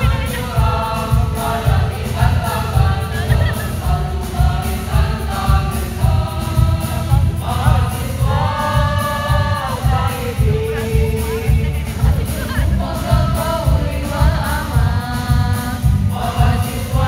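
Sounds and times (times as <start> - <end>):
choir singing a march: 0.0 - 17.0
steady low beat: 0.0 - 17.0.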